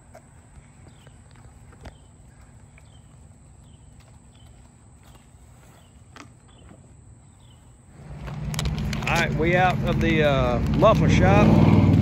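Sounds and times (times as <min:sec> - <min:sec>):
footsteps on concrete: 0:00.0 - 0:06.8.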